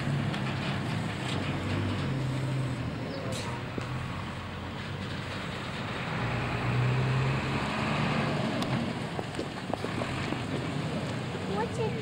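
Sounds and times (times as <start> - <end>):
road and wind noise: 0.0 - 12.0
truck engine driving off: 0.0 - 12.0.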